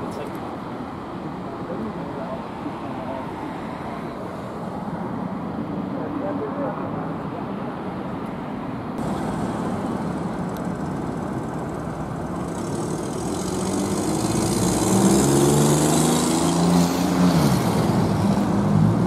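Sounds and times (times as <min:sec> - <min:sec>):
hum of traffic: 0:00.0 - 0:19.0
vehicle engine passing: 0:09.0 - 0:19.0.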